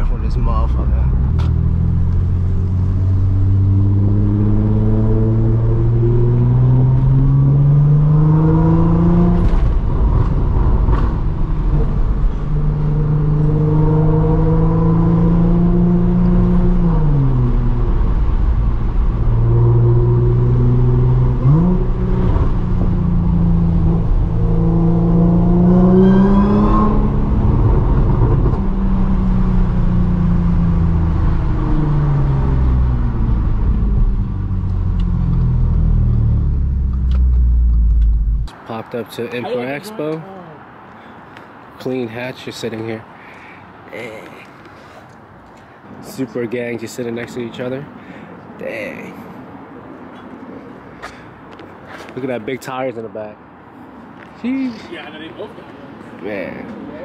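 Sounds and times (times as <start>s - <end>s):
car engine accelerating: 0.0s - 38.5s.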